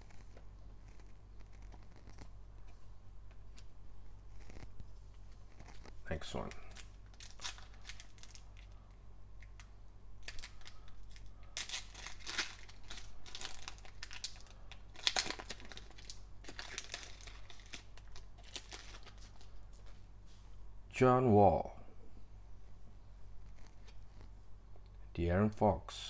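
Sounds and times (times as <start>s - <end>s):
foil wrapper tearing and crinkling: 6.4s - 8.7s, 10.2s - 19.6s.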